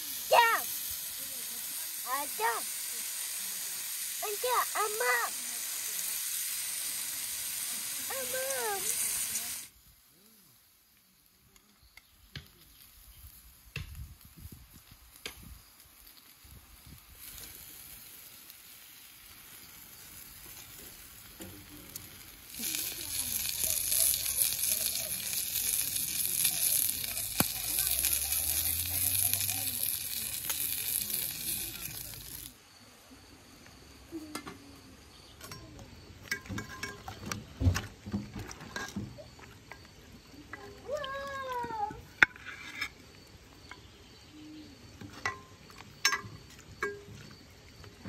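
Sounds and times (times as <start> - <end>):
food sizzling on a grill: 0.0 - 48.0
light clicks and clinks: 35.4 - 37.4.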